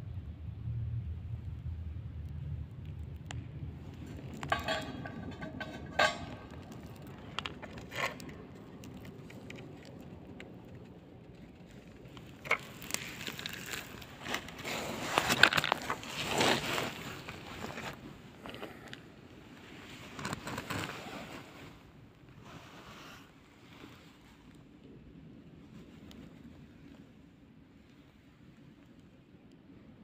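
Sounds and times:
scrap metal clattering clicks: 4.3s - 8.7s
steel ring knocking metal disc: 4.4s - 6.9s.

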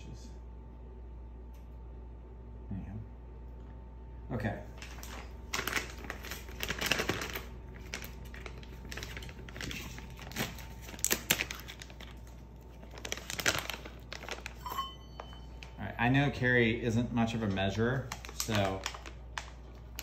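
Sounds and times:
plastic pouch crinkling: 4.8s - 15.8s, 17.3s - 20.0s.

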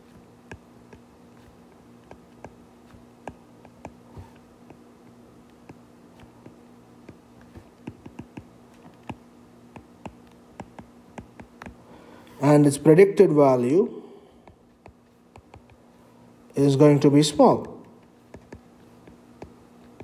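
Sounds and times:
steady low hum: 0.0s - 20.0s
stylus clicking on tablet screen: 5.6s - 11.8s, 14.5s - 15.8s.

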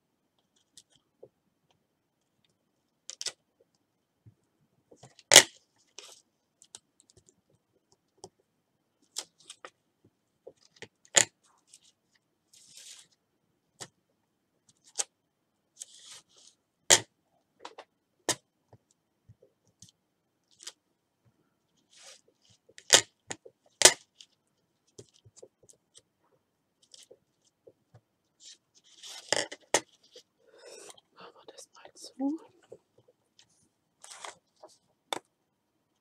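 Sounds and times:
paper rustling: 33.4s - 34.9s.

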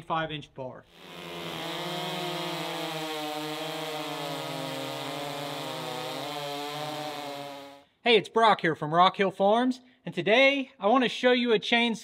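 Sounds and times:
chainsaw cutting log: 0.9s - 7.8s.

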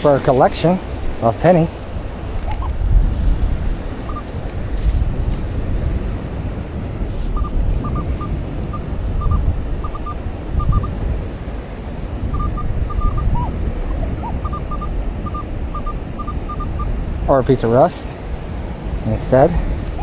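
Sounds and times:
ocean surf: 0.0s - 20.0s
wind rumbling on microphone: 0.0s - 20.0s
metal detector high beeps: 4.0s - 4.3s, 7.3s - 11.0s, 12.3s - 13.5s, 14.2s - 16.9s.

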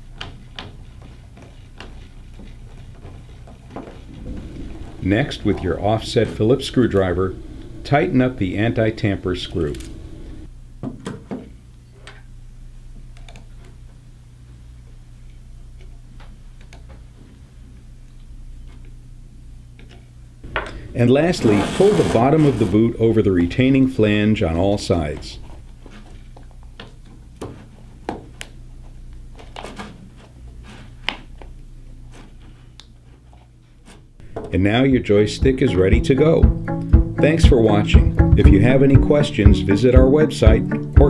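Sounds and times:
steady low hum: 3.8s - 10.8s, 17.4s - 26.8s.

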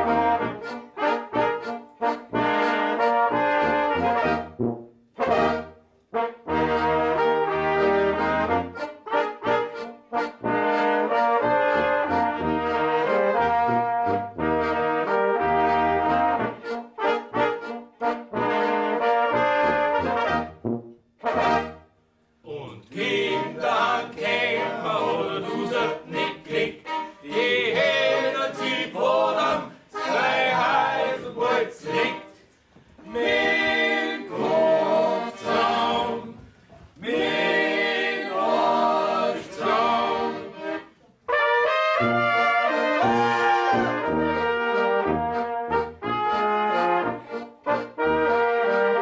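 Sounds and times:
accordion: 0.0s - 21.9s, 23.0s - 49.0s
flugelhorns and tenor horns: 0.0s - 21.9s, 39.6s - 49.0s
tuba: 0.0s - 49.0s.

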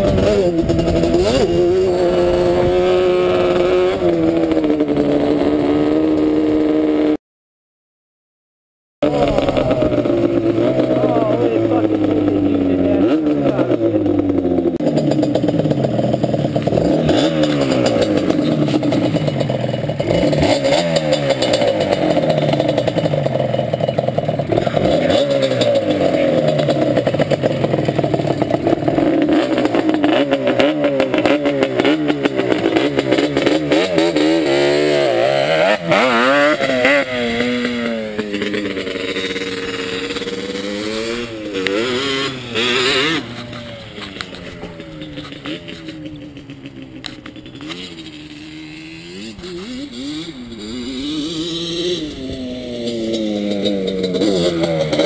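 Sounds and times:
atv engine revving: 0.0s - 7.2s, 9.0s - 55.0s.

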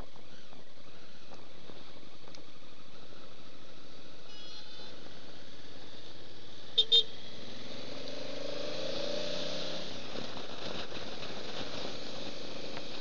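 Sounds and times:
wind rush on microphone: 7.3s - 13.0s.

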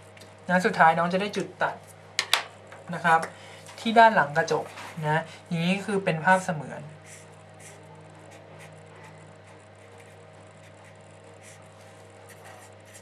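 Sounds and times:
steady low hum: 0.0s - 13.0s
marker scratching on paper: 7.0s - 13.0s.

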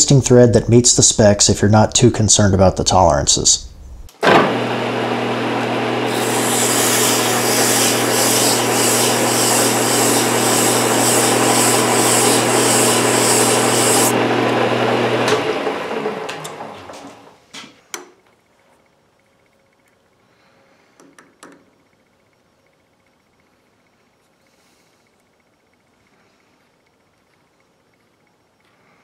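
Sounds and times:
metal lathe humming: 4.4s - 17.0s
small clicks: 25.0s - 28.8s.

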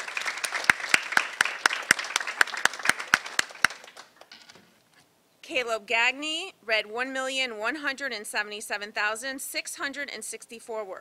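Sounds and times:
audience applauding: 0.0s - 4.3s
person clapping steadily: 0.0s - 4.3s.

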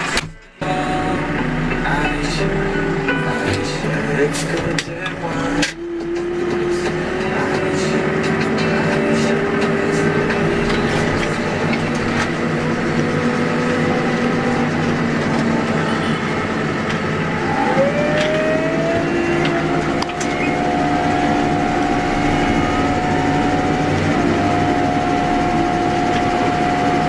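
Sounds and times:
backhoe loader engine running: 0.0s - 27.0s
rising whine: 0.6s - 27.0s.

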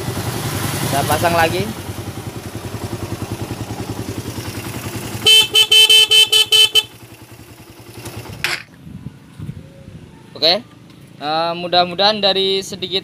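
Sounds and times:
motorcycle engine running: 0.0s - 10.0s
short horn honks: 5.2s - 7.0s.

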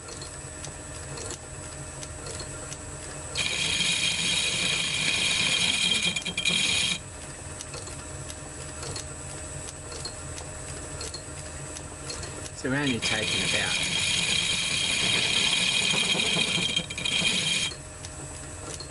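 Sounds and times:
lathe tool squealing: 3.4s - 7.0s, 12.8s - 17.8s
metal lathe humming: 3.4s - 7.0s, 12.6s - 17.8s.

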